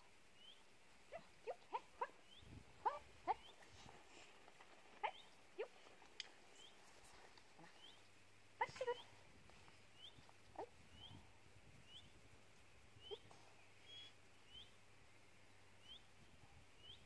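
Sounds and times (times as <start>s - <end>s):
faint bird chirps: 0.3s - 1.3s, 2.0s - 2.6s, 6.4s - 8.2s, 8.9s - 17.0s
young dog yipping: 2.8s - 3.6s.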